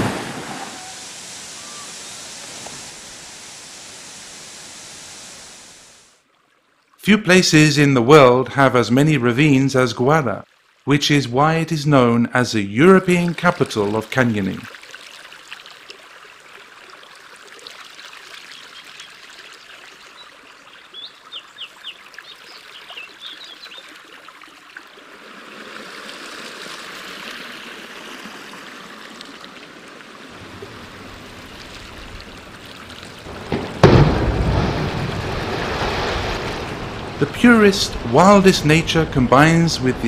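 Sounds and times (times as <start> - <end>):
loud rush of water: 0.0 - 6.2, 24.9 - 40.0
water running and trickling: 10.4 - 10.9, 13.2 - 33.8.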